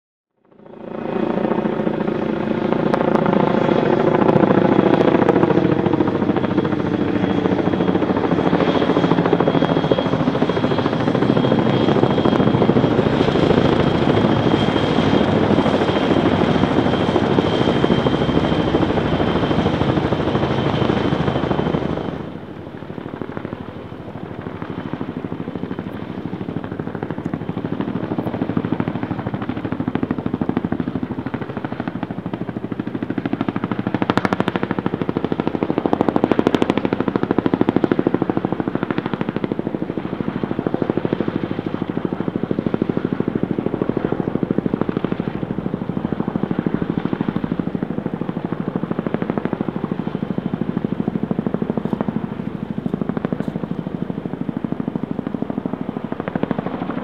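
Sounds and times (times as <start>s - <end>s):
helicopter rotor and turbine noise: 0.3s - 57.0s
high turbine whine: 0.6s - 57.0s.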